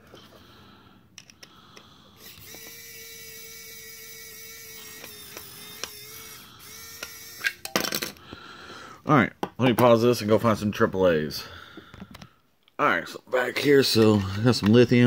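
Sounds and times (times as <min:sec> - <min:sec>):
electric screwdriver whirring: 0:02.2 - 0:07.6.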